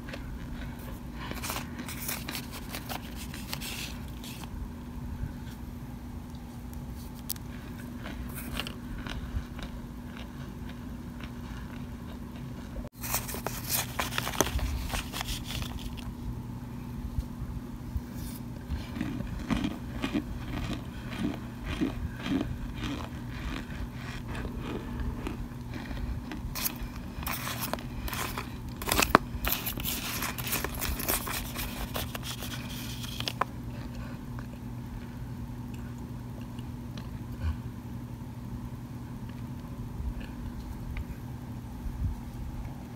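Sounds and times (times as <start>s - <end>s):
low hum: 0.0s - 42.9s
spoon crunching cornstarch: 13.0s - 16.1s, 18.3s - 33.5s.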